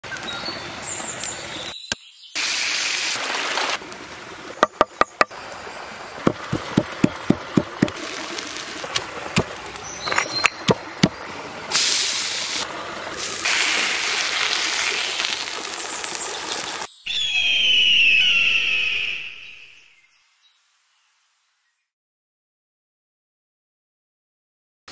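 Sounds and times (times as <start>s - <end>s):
hiss: 2.4s - 3.8s, 11.7s - 16.9s
sharp knocks: 4.6s - 5.3s, 6.3s - 8.0s, 10.5s - 11.2s.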